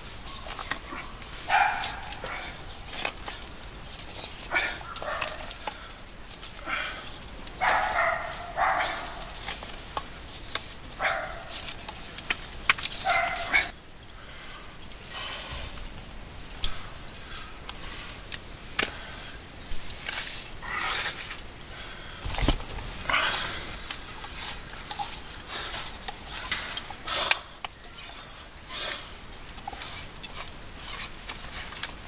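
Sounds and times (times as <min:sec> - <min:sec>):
hand auger boring into log: 0:29.6 - 0:32.0.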